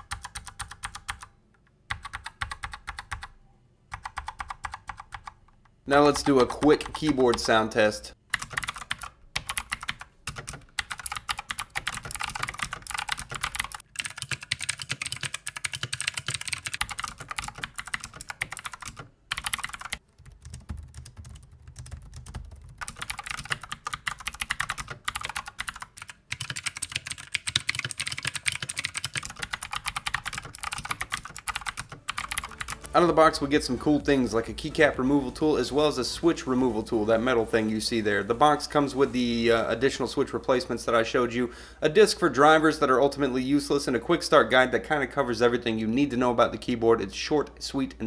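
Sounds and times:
mechanical keyboard typing: 0:00.0 - 0:01.3, 0:01.9 - 0:07.7, 0:08.3 - 0:32.9.

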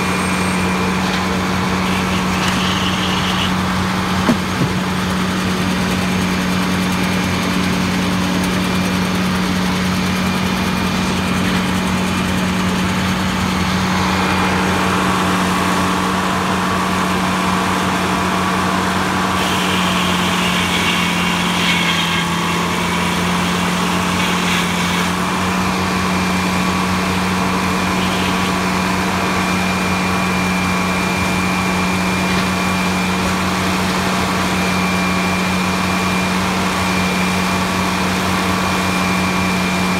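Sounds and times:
high whine: 0:00.0 - 0:05.0
sawmill engine running: 0:00.0 - 0:39.9.

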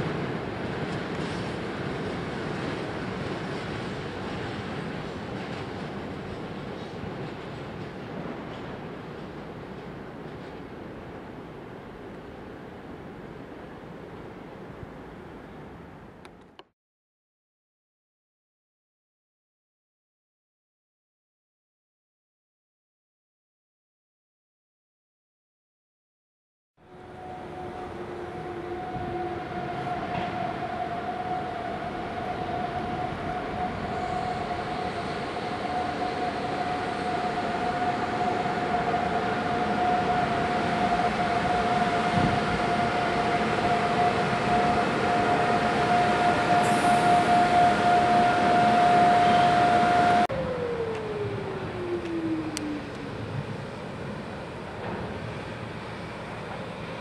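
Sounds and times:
lower tone sliding down: 0:26.9 - 0:53.8
electric locomotive running: 0:26.9 - 0:57.0.

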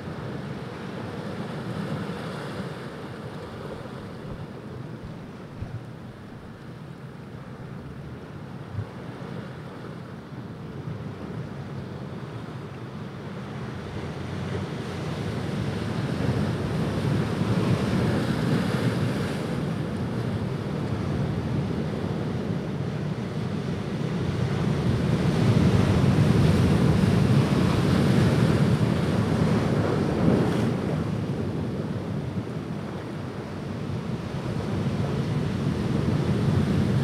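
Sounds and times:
ocean surf breaking: 0:13.4 - 0:37.0.

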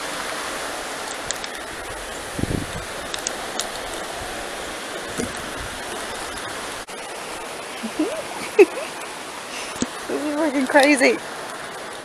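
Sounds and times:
river rushing: 0:00.0 - 0:12.0.

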